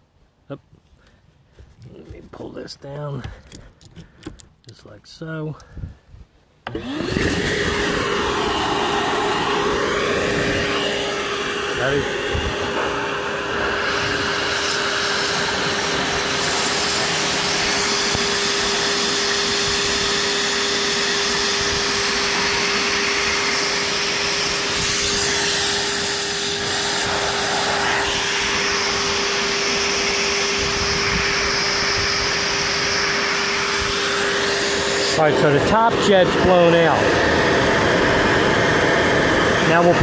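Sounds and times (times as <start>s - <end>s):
shop vac motor whine: 6.6s - 40.0s.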